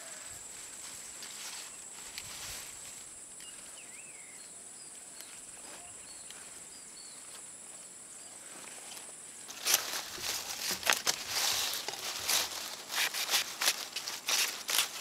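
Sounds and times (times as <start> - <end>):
leaves and soil rustling: 0.0 - 15.0
bird chirps: 3.4 - 7.4.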